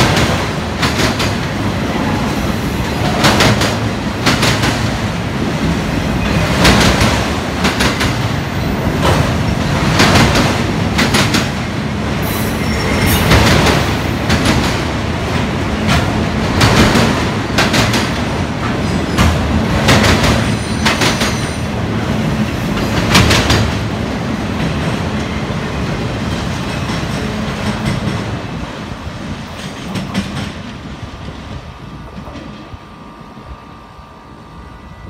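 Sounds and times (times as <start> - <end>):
train wheels clacking over rail joints: 0.0 - 1.6, 2.9 - 4.9, 6.2 - 11.6, 12.3 - 14.9, 15.8 - 21.7, 22.4 - 23.9, 26.2 - 28.3, 29.4 - 30.9
freight train rumble: 0.0 - 35.0.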